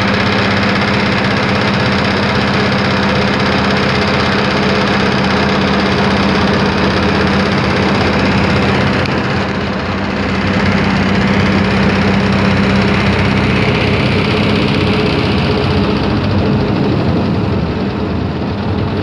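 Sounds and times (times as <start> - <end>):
engine running steadily: 0.0 - 19.0.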